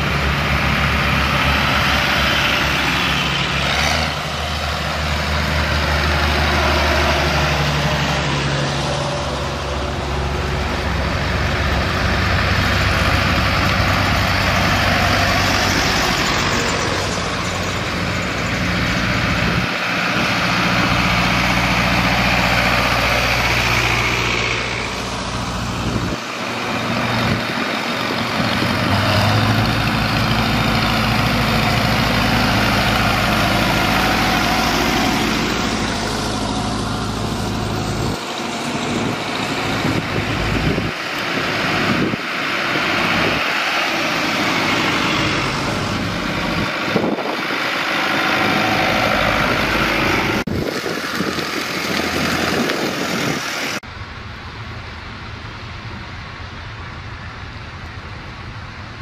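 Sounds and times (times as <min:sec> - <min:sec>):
tractors driving past: 0:00.0 - 0:59.0.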